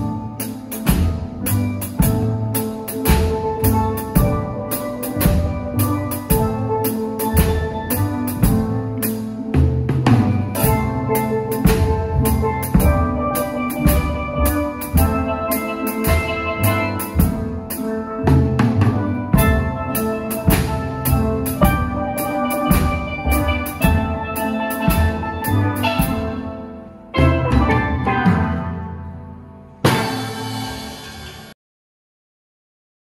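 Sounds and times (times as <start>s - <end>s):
bass drum: 0.0s - 26.5s
drum kit beat: 0.0s - 29.1s, 29.8s - 31.5s
steel pans playing a tune: 0.0s - 31.5s
cymbal strikes: 10.2s - 28.9s, 29.8s - 31.6s.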